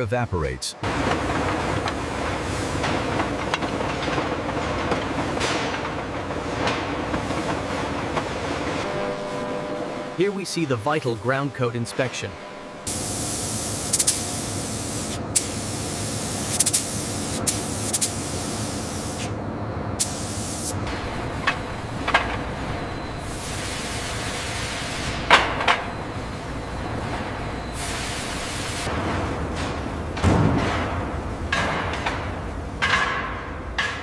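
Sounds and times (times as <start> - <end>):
low hum: 0.8 - 15.0
sharp clicks and knocks: 2.8 - 8.4
spray gun hissing: 12.9 - 19.3, 20.0 - 20.8.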